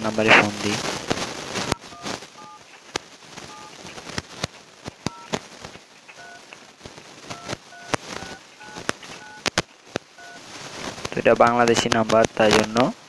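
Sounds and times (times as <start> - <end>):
phone dial pad beeps: 1.7 - 2.6, 3.5 - 3.8, 5.1 - 5.3, 6.2 - 6.4, 7.3 - 9.5, 10.2 - 10.4.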